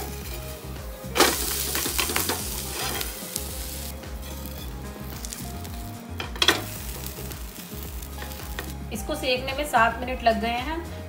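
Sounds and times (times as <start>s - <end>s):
food sizzling in a pan: 0.0s - 9.1s
metal spatula scraping: 1.2s - 5.4s.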